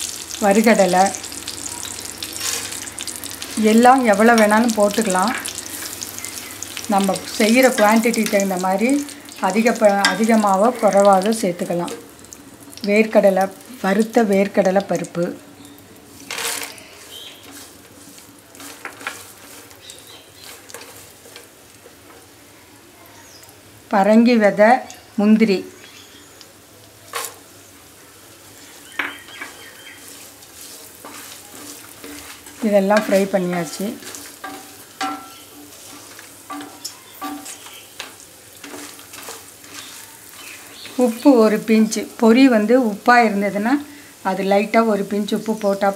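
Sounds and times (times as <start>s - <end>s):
wooden spatula stirring nuts: 0.0s - 12.1s, 16.0s - 22.3s, 28.6s - 42.3s
spatula and nuts clicking on pan: 0.0s - 15.2s, 16.2s - 22.3s, 28.9s - 42.3s
oil sizzling in a pan: 0.0s - 45.9s.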